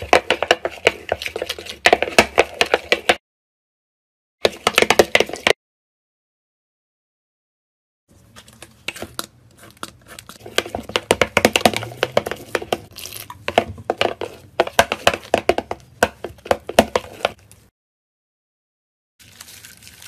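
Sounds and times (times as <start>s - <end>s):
slime stirred with spoon: 0.0s - 3.2s, 8.1s - 17.7s, 19.2s - 20.0s.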